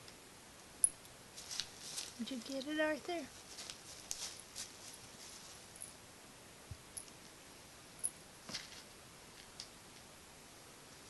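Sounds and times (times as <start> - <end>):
kitten scuffing on carpet: 3.3 - 5.6.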